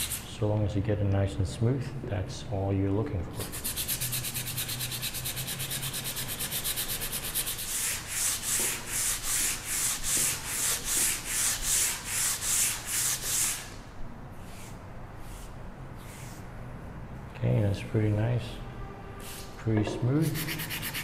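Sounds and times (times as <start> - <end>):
sandpaper rubbing on wood: 0.0 - 0.3, 3.4 - 13.7, 20.2 - 21.0.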